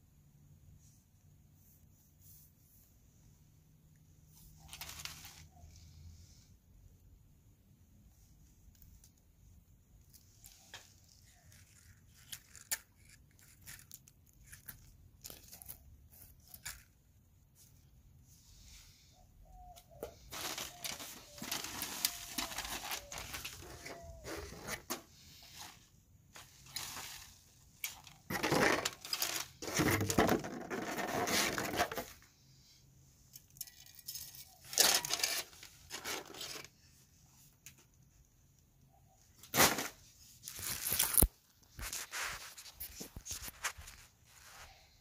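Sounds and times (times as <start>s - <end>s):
wrapping being torn and crinkled: 10.1s - 17.0s, 20.3s - 24.8s, 26.4s - 30.1s, 39.5s - 44.7s.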